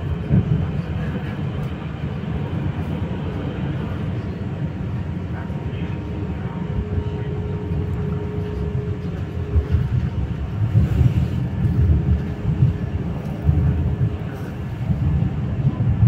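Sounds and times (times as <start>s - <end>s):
train wheels rumbling on rails: 0.0s - 16.0s
faint whine: 3.6s - 15.0s.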